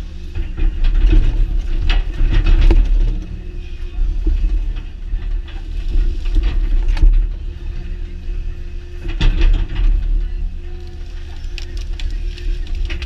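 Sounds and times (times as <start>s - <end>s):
excavator engine and hydraulics: 0.0s - 13.0s
machine knocks and clanks: 9.0s - 10.2s.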